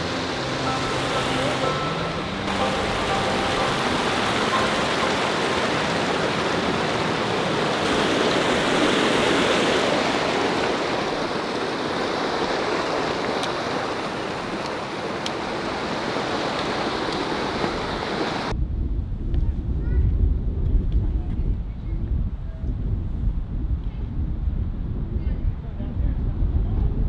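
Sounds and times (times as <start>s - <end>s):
mountain stream rushing: 0.0s - 18.5s.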